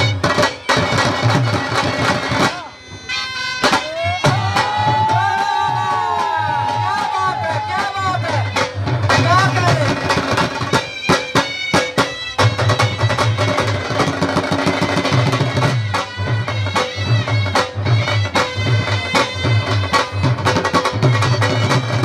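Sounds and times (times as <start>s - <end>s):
nasal wind pipe melody: 0.0s - 9.2s
dhol drum bass strokes: 0.0s - 22.0s.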